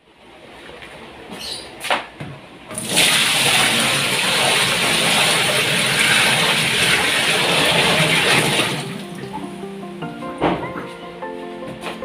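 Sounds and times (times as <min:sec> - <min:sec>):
water pouring into washing machine: 0:02.8 - 0:09.2.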